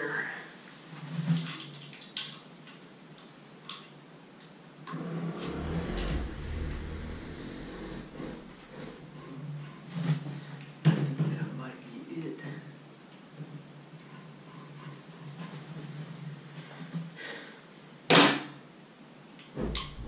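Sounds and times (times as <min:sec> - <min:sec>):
low rumble of carriage: 0:04.9 - 0:09.3, 0:19.6 - 0:20.0.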